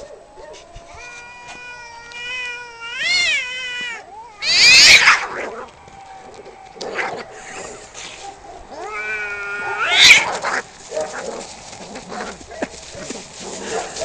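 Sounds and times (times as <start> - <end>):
cats yowling: 0.0 - 14.0
cat harsh outburst: 1.0 - 5.5, 8.8 - 10.6.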